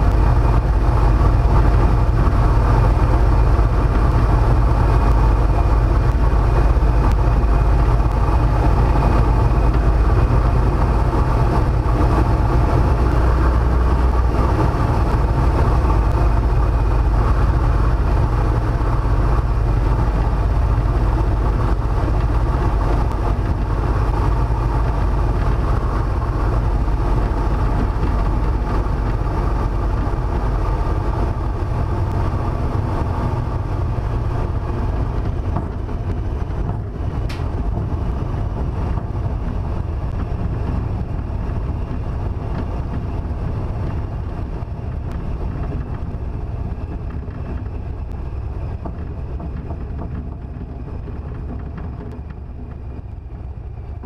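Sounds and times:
aircraft radial engine running: 0.0 - 54.0
wind noise: 0.0 - 54.0.

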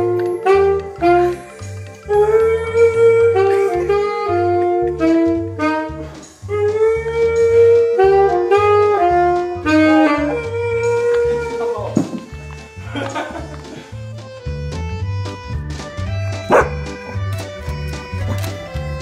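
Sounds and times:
jazz saxophone music: 0.0 - 12.8, 13.9 - 19.0
dog howling: 9.6 - 11.6.

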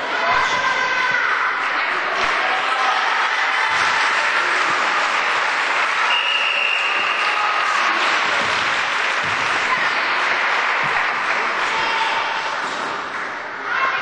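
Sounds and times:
spectators applauding: 3.7 - 13.5.

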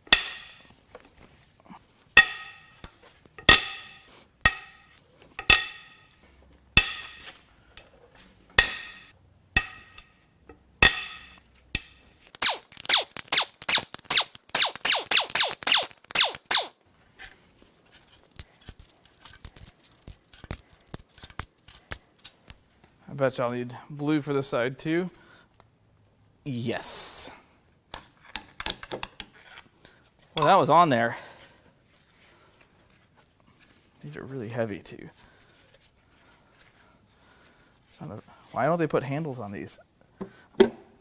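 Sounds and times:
ringing metal strikes: 2.2 - 2.8, 3.5 - 6.1.

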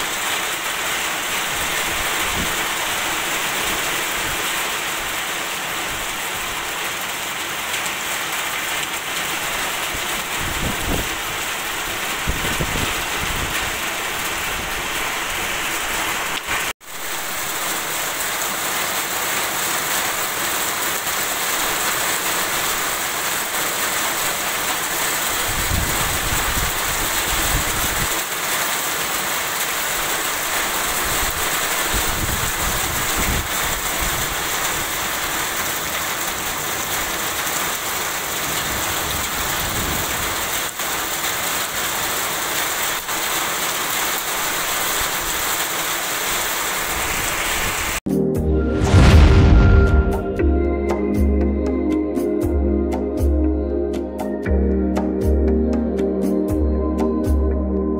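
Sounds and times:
heavy rain falling: 0.0 - 48.0, 48.7 - 50.4
low rumbles: 48.6 - 50.8.

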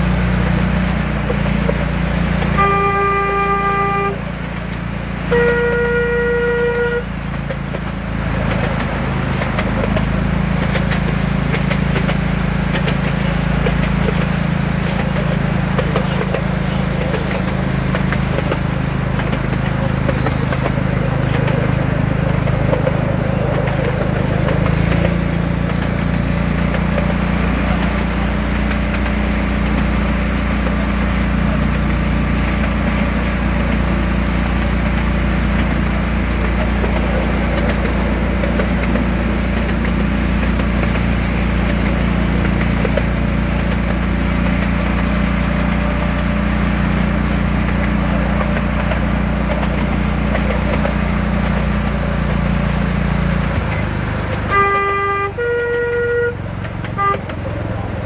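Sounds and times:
locomotive engine running: 0.0 - 58.0
short horn toot: 2.5 - 4.3, 5.3 - 7.1, 54.4 - 57.5.

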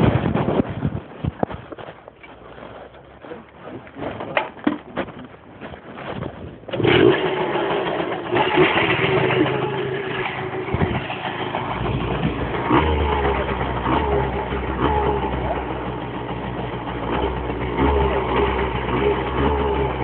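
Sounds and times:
deeper engine rumble: 6.0 - 20.0
vehicle engine running: 6.7 - 20.0.

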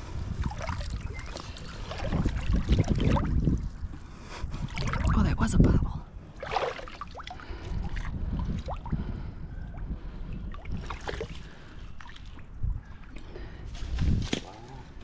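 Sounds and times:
river water splashing: 6.4 - 8.1.

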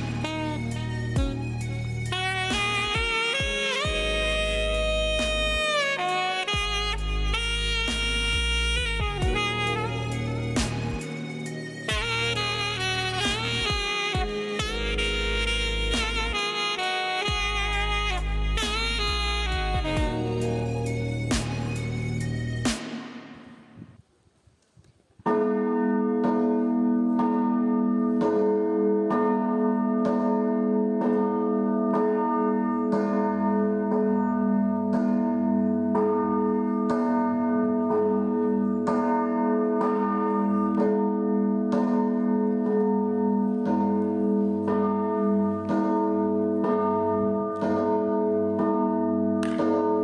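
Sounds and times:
church bells ringing: 25.2 - 50.0.

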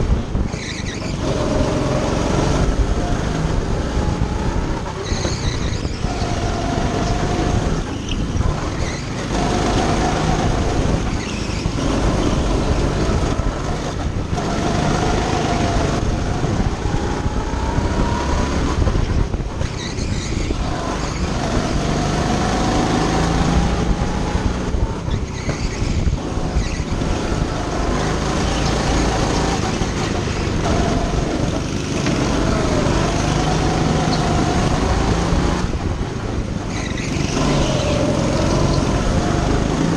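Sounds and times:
go-kart engine running hard: 0.0 - 39.9.

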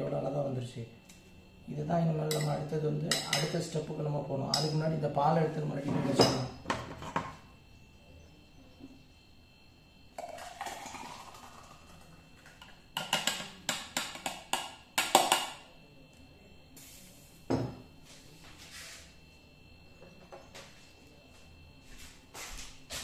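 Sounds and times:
spoon clinking against glass: 2.3 - 3.6, 4.5 - 4.8
milk pouring into glass: 10.2 - 13.3.

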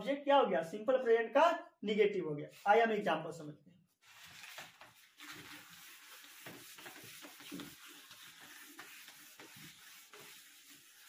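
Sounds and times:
hand rubbing whiteboard: 5.2 - 11.0.

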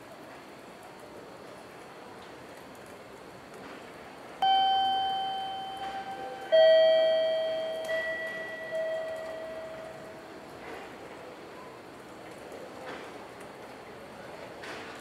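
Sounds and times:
two-tone bell-like chime: 4.4 - 10.2.

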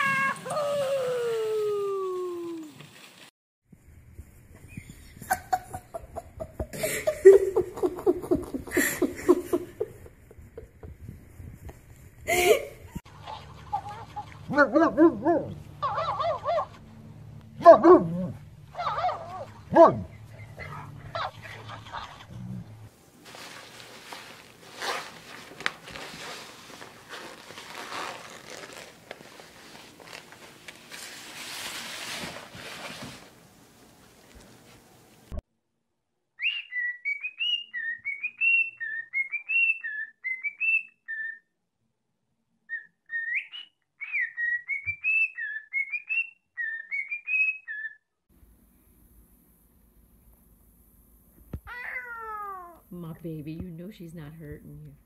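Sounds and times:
fabric and plastic rustling on tile: 2.4 - 3.3, 23.0 - 35.2
person laughing hard: 5.2 - 11.1, 12.3 - 13.0.

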